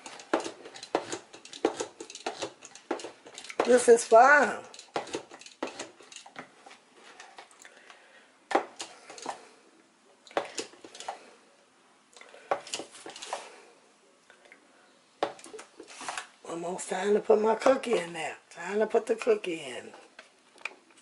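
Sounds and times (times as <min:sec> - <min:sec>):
whisk scraping plastic cup: 0:00.0 - 0:06.2.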